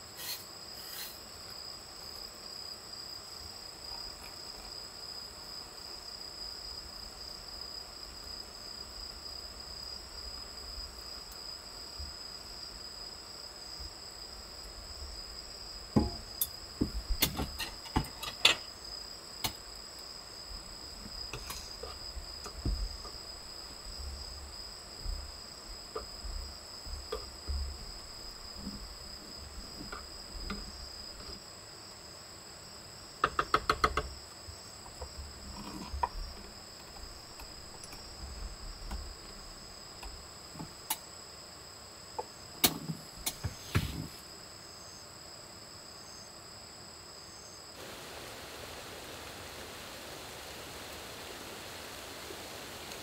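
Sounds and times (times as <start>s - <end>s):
crickets chirring: 0.0s - 53.0s
rain hissing: 20.5s - 30.4s, 47.8s - 53.0s.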